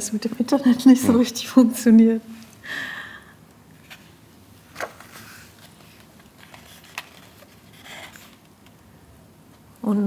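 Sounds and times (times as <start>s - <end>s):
book pages turning: 3.7s - 8.8s
page snaps: 4.7s - 5.1s.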